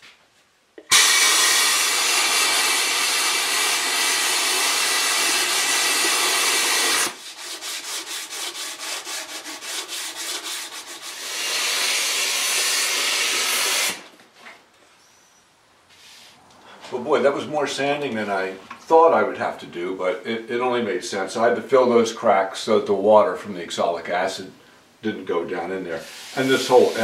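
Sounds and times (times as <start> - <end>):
shop vacuum sucking dust: 0.8 - 14.1, 25.9 - 27.0.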